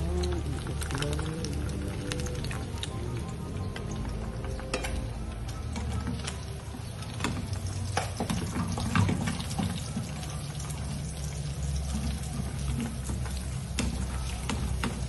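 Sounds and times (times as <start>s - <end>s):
food frying hiss: 6.4s - 15.0s.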